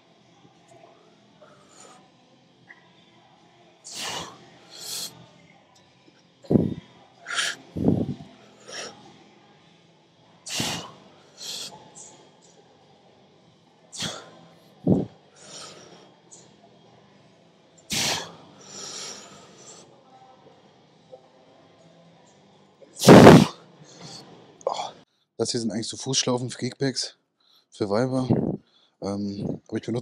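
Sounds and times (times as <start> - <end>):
man exhaling forcefully: 10.5 - 10.9.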